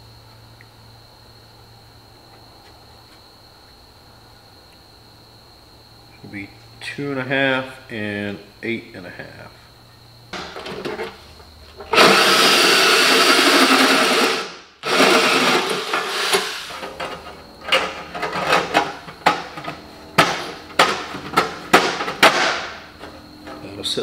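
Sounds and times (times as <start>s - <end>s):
drill cutting through steel: 11.9s - 16.8s.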